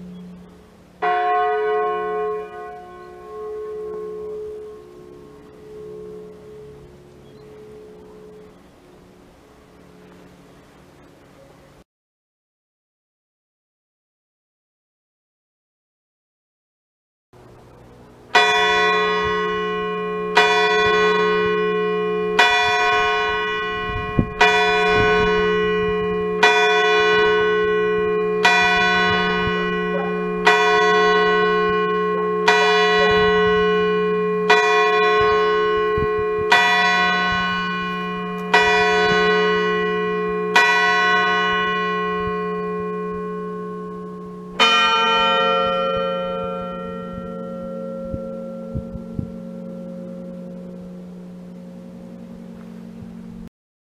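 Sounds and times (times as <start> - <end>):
low church bell strokes: 0.0 - 11.2, 17.4 - 53.5.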